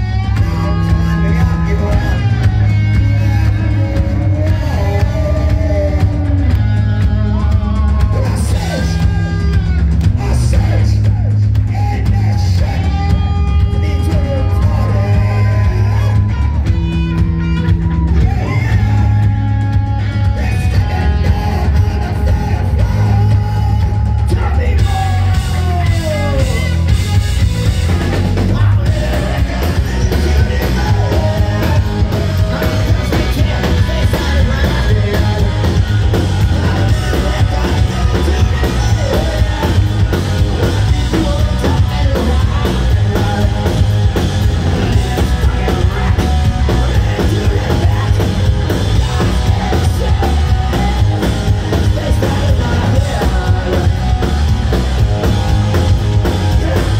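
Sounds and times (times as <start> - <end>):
live rock band playing: 0.0 - 56.9
singer singing and yelling: 0.0 - 56.9.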